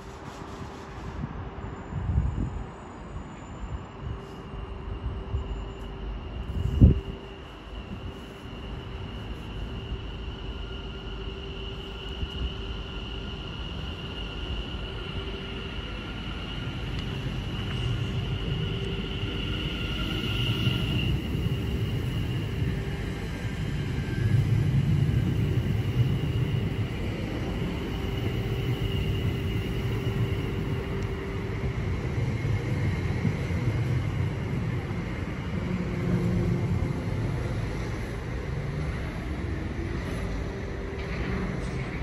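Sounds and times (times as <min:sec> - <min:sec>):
train rumble: 0:00.0 - 0:42.0.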